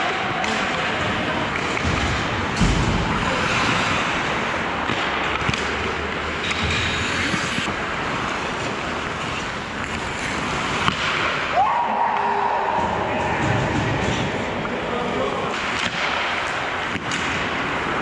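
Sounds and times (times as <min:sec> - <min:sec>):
skates rushing on ice: 0:00.0 - 0:18.0
hockey sticks knocking puck: 0:00.3 - 0:07.7, 0:08.6 - 0:11.5, 0:15.4 - 0:18.0.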